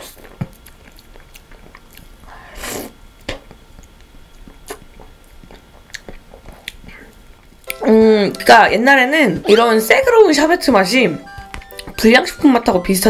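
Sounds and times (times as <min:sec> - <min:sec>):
mouth eating sounds: 0:03.7 - 0:08.6.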